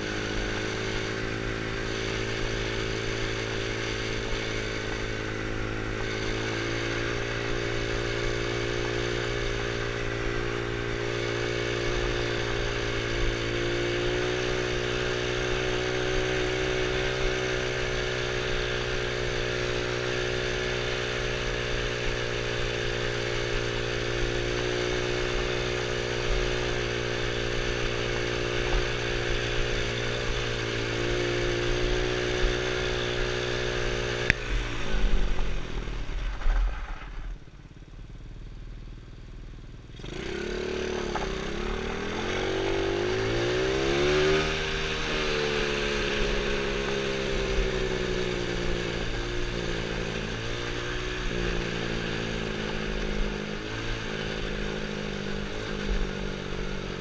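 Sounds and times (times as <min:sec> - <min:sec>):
quad engine revving and idling: 0:00.0 - 0:57.0.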